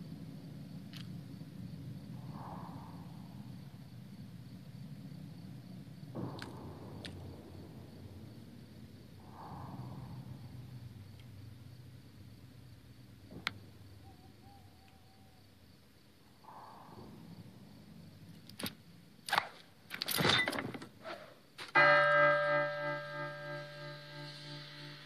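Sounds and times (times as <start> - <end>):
knocks and clatters: 19.9 - 21.0
church bell ringing: 21.8 - 25.0.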